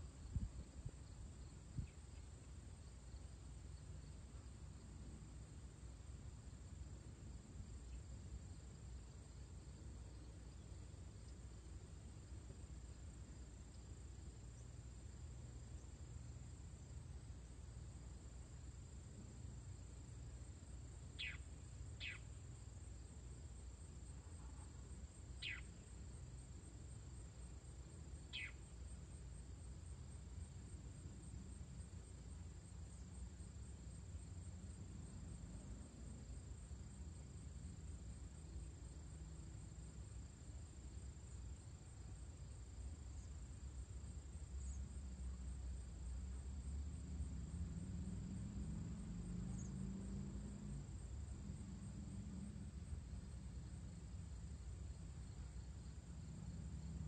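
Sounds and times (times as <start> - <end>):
high-pitched insect trill: 0.0 - 57.0
falling bird calls: 21.2 - 21.4, 22.0 - 22.2, 25.4 - 25.7, 28.3 - 28.6.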